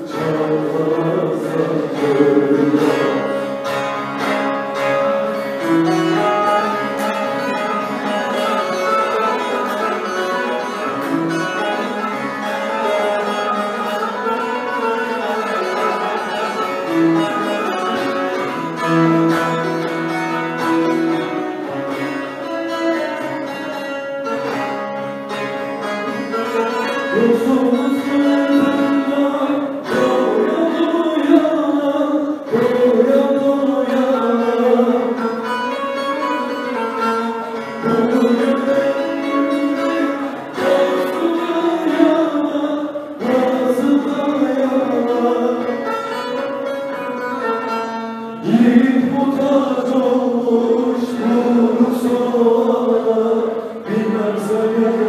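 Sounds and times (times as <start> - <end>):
man singing: 0.0 - 24.1, 26.0 - 47.5, 48.4 - 55.0
long-necked lute playing: 0.0 - 55.0.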